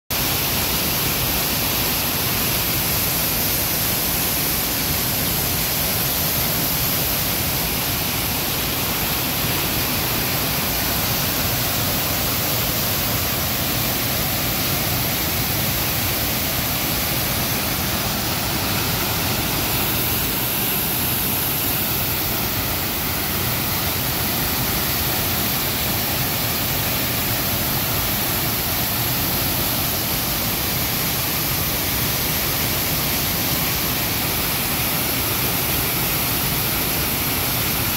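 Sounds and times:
waterfall crashing onto rocks: 0:00.1 - 0:37.9.

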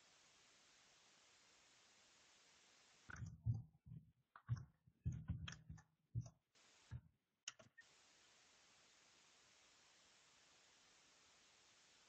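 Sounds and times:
faint steady hiss: 0:00.0 - 0:03.2, 0:06.6 - 0:12.0
soft clicks and low knocks: 0:03.1 - 0:07.8.

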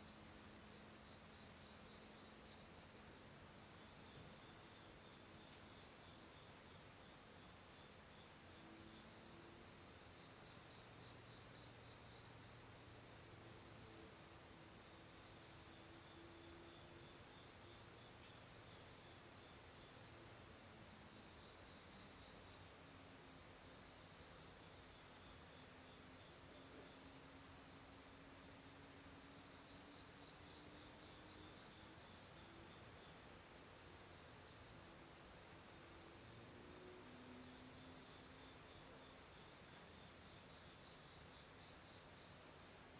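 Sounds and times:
lower pulsing insect song: 0:00.0 - 0:42.9.

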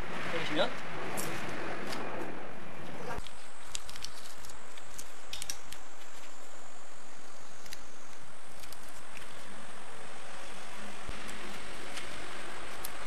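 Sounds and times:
steady hiss: 0:03.1 - 0:13.0.

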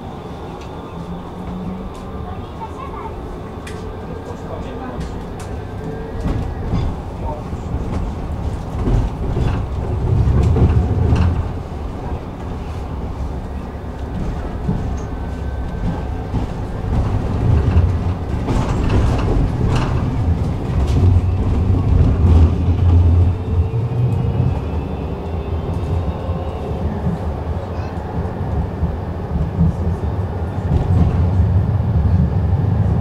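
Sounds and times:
tram wheels rumbling on rail: 0:00.0 - 0:33.0
wheels clicking over rail joints: 0:04.7 - 0:23.4.

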